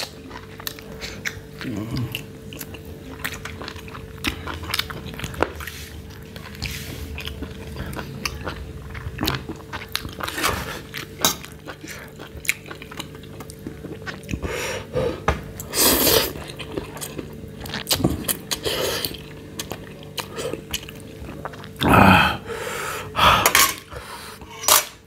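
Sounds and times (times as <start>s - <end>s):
person chewing: 0.0s - 24.9s
slurping noodles: 14.3s - 16.5s.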